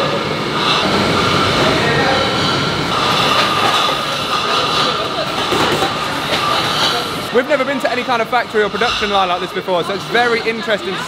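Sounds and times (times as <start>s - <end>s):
bottling machine din: 0.6s - 9.3s.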